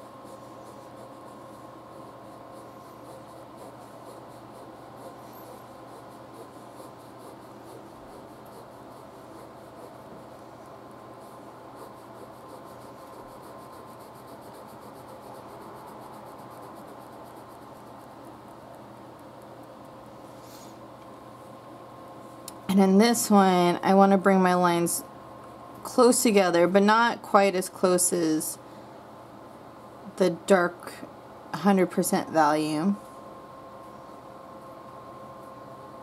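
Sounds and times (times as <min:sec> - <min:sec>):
ballpoint pen scratching on paper: 0:00.0 - 0:18.4.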